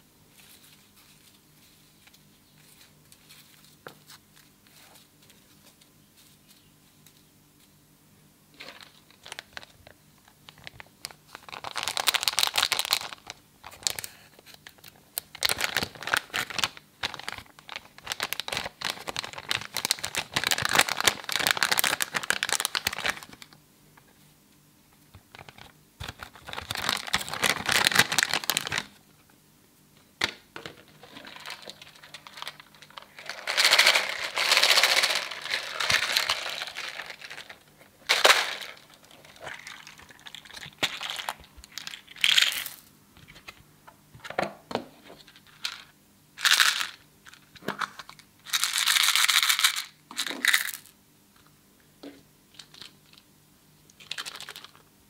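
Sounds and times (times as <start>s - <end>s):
foil confetti crinkling and rustling: 10.6s - 23.5s, 25.3s - 29.0s, 30.6s - 42.8s.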